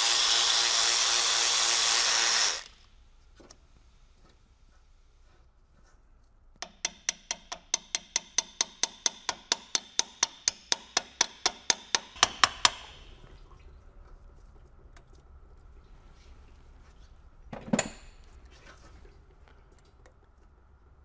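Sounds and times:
hand ratchet clicking: 6.6s - 13.0s.

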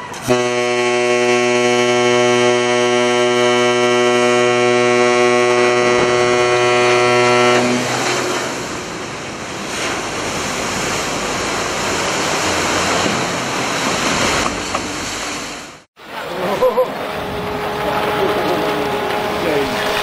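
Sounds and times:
horn steady note: 0.2s - 8.4s, 16.8s - 20.0s
water rushing and splashing: 4.9s - 20.0s.

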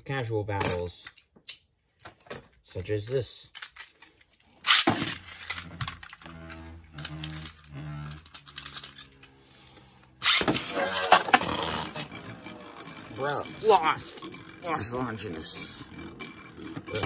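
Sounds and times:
launcher cord rattling: 3.6s - 9.4s, 10.1s - 17.0s
spinning top launched with rasp: 4.6s - 9.4s, 10.0s - 17.0s
spinning top humming: 4.7s - 17.0s.

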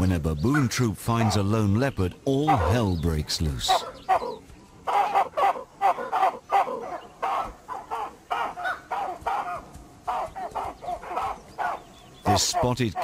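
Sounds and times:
baboons giving harsh alarm calls: 2.4s - 3.0s, 3.6s - 13.0s.

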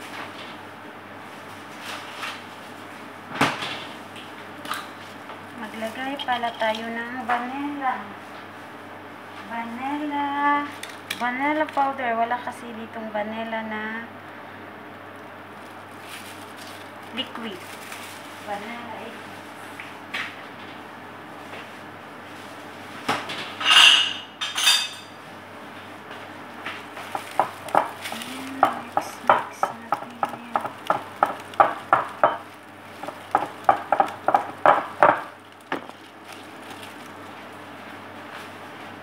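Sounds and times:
utensil beating batter in bowl: 26.7s - 37.6s.

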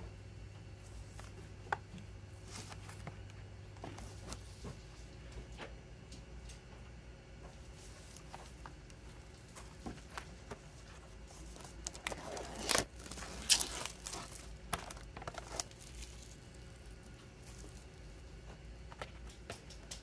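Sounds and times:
plastic shrink-wrap crinkling: 7.8s - 19.8s.

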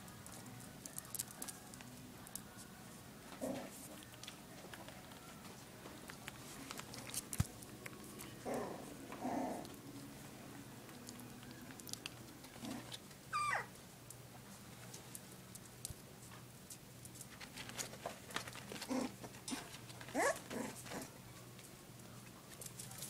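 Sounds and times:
light clicks and scratches: 3.4s - 8.4s, 14.4s - 23.0s
puppies whining: 12.4s - 13.8s, 18.8s - 21.2s.

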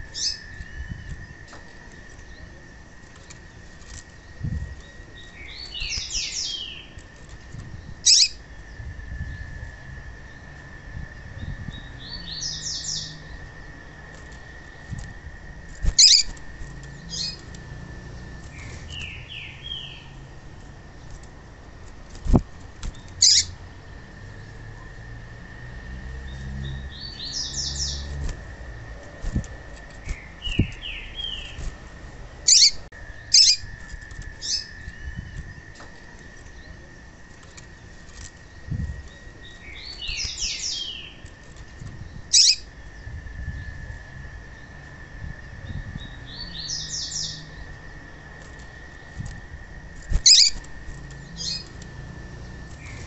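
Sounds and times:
bird high calls: 0.0s - 1.4s, 8.0s - 8.5s, 15.8s - 17.5s, 22.9s - 23.6s, 32.4s - 36.9s, 42.2s - 43.0s, 50.0s - 51.8s.

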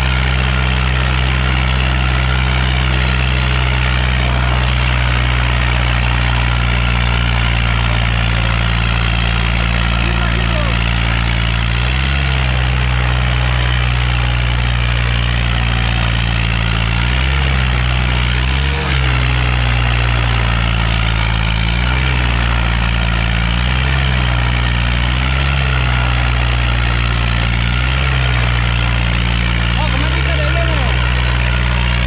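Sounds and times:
tractor diesel engine labouring: 0.0s - 32.0s.

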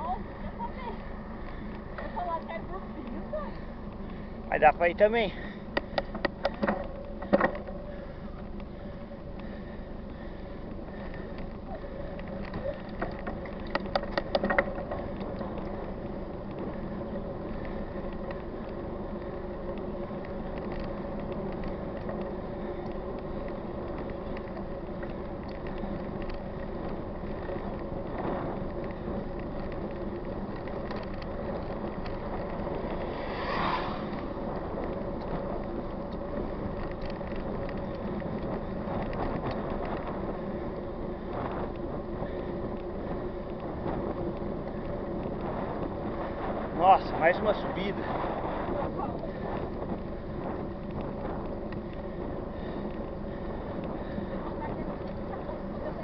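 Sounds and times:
bike tyres and drivetrain rolling: 0.0s - 56.0s
wind on microphone: 11.2s - 56.0s.

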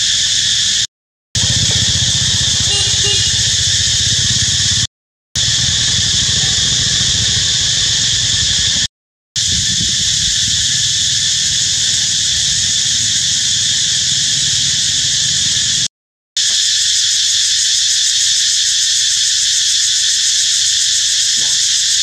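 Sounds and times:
cicadas droning: 0.0s - 22.0s.

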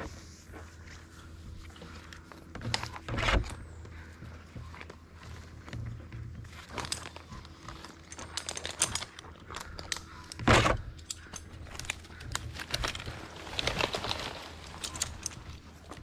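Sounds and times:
light clinks and rustling: 6.5s - 10.0s, 13.7s - 15.9s.

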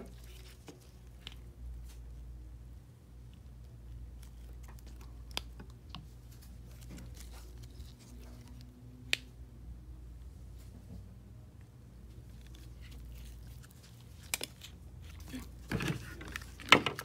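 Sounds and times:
low steady hum: 0.0s - 17.0s
plastic clicks and rustles: 12.3s - 17.0s.

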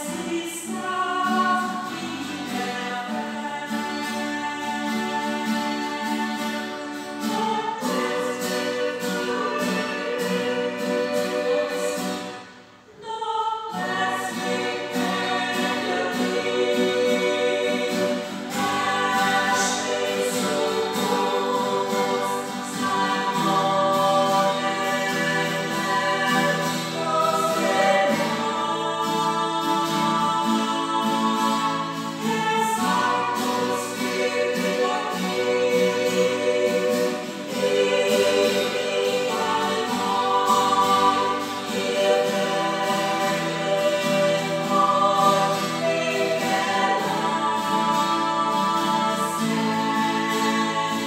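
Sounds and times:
strummed acoustic guitars: 0.0s - 51.0s
women singing together: 0.0s - 51.0s.

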